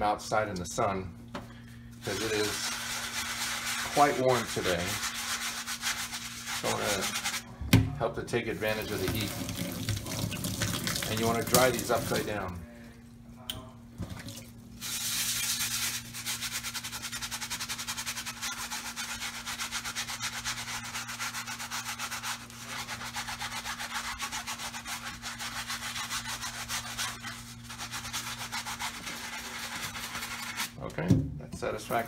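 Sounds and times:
brush scrubbing shoe insole: 2.1 - 7.4, 14.8 - 30.8.

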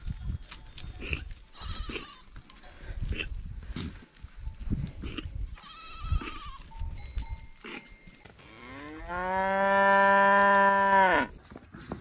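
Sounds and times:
goat bleating: 1.5 - 2.3, 5.6 - 6.7
cow mooing: 8.4 - 11.3.

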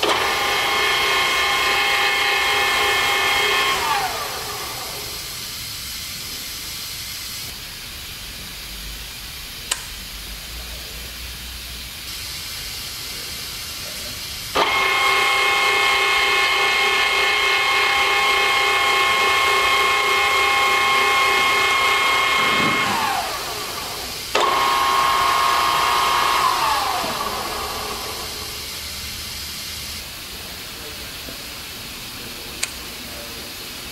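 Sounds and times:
drill press motor whining: 0.0 - 5.5, 14.5 - 30.0
sharp click: 9.7 - 10.0.

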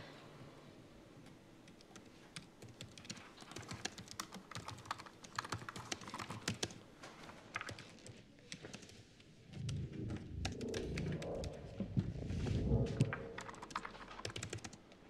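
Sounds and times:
typing on laptop keyboard: 1.2 - 6.8, 7.4 - 11.6, 13.4 - 14.9.

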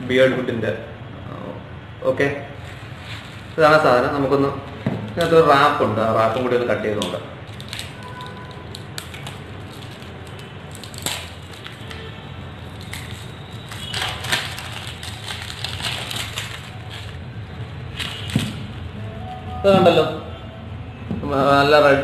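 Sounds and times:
plastic wrap crinkling: 7.4 - 19.0.

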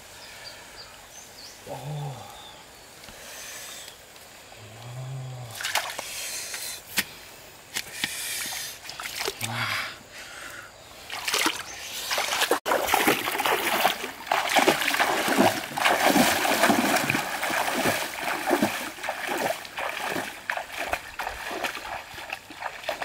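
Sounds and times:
water splashing and sloshing: 5.6 - 6.2, 8.4 - 9.5, 11.0 - 23.0.

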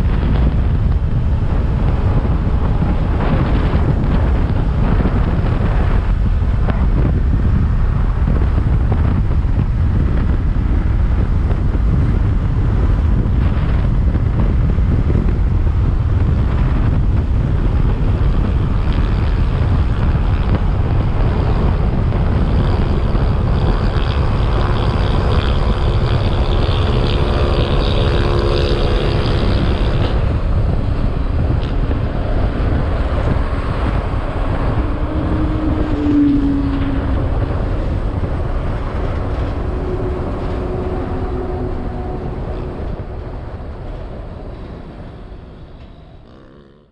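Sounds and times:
motorcycle engine: 0.0 - 46.9
wind buffeting microphone: 0.0 - 46.9.

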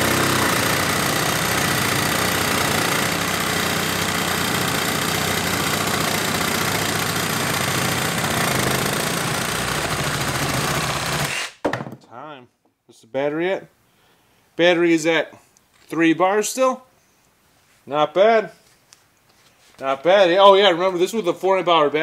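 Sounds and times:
reciprocating saw cutting wood: 0.0 - 11.6.

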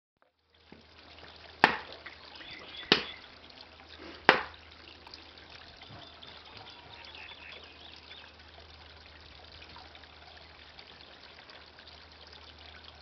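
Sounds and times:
fountain water trickling: 0.2 - 13.0
sharp knocks: 1.6 - 1.9, 2.9 - 3.1, 4.3 - 4.5.

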